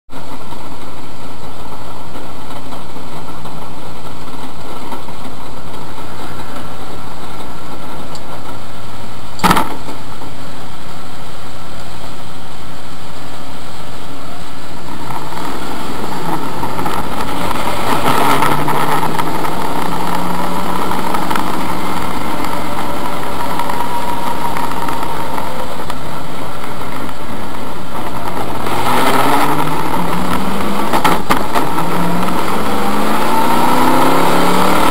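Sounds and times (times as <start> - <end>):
race car engine: 0.1 - 34.9
sharp knock: 9.4 - 10.0.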